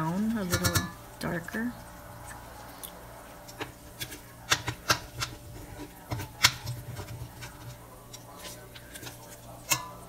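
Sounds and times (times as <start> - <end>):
metal tongs tapping a steel pan: 0.4 - 1.0, 9.0 - 10.0.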